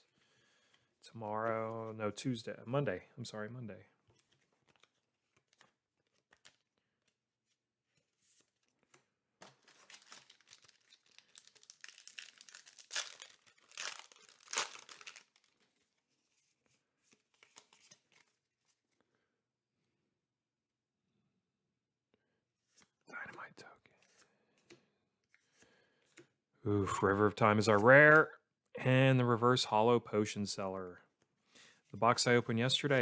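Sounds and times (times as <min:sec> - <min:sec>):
foil pack crinkling and tearing: 0:09.6 - 0:15.6.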